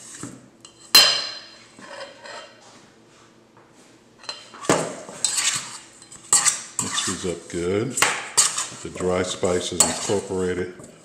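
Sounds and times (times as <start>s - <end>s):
metal spoon scraping steel bowl: 5.2s - 7.6s, 8.4s - 10.4s.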